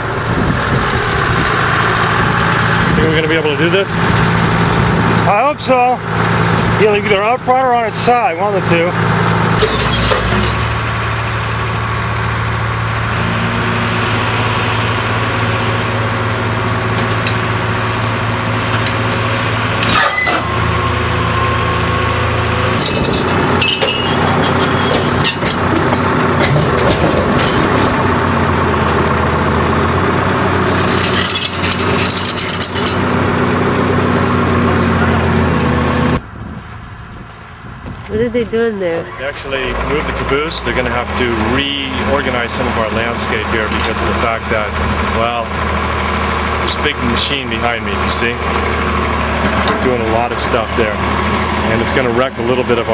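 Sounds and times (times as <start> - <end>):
heavy equipment engine running: 0.0 - 52.9
metal clanks and knocks: 9.5 - 10.8, 18.7 - 20.6, 22.6 - 29.1, 30.6 - 33.2, 49.3 - 51.2.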